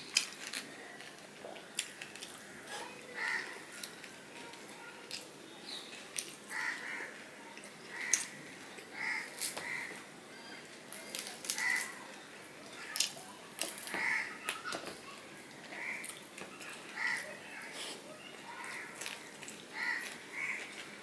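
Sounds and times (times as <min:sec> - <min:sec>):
wet chewing: 0:15.4 - 0:21.0.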